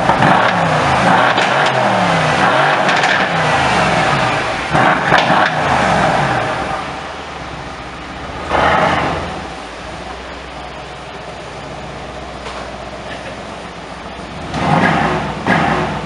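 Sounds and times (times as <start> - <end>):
car engine revving: 0.0 - 16.0.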